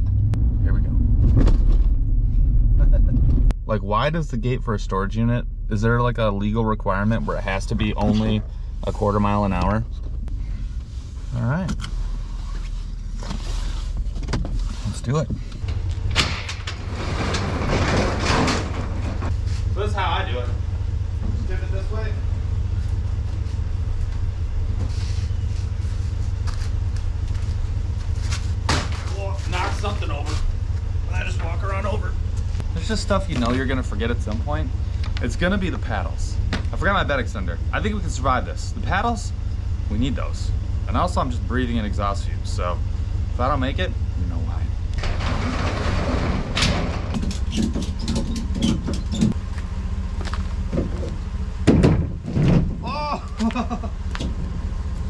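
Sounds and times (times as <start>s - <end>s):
truck engine idling: 0.0s - 55.0s
roll-up metal door rattling: 15.6s - 19.3s, 44.9s - 49.4s.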